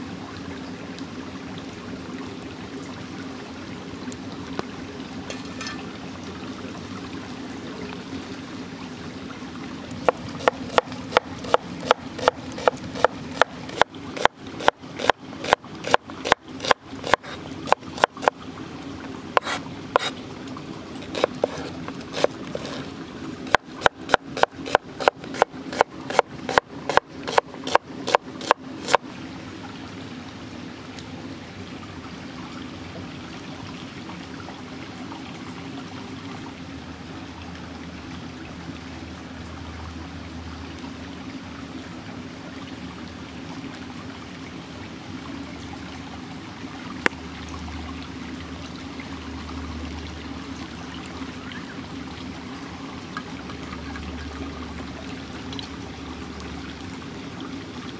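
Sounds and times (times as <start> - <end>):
running water: 0.0 - 57.9
cleaver chopping on wooden board: 10.0 - 15.2, 15.9 - 18.3, 21.1 - 21.6, 22.2 - 22.8, 23.5 - 29.0.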